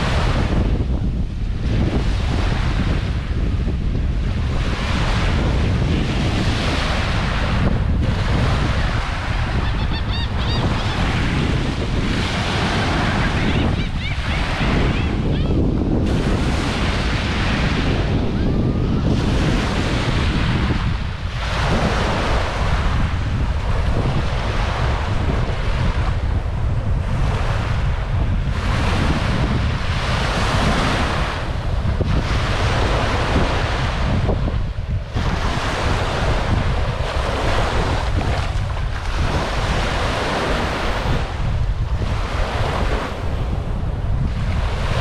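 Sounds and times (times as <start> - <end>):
small waves washing on sand: 0.0 - 45.0
wind buffeting microphone: 0.0 - 45.0.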